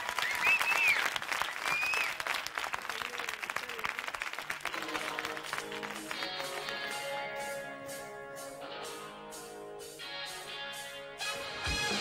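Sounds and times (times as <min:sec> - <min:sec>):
audience applauding: 0:00.0 - 0:07.4
shrill whistles: 0:00.1 - 0:02.2.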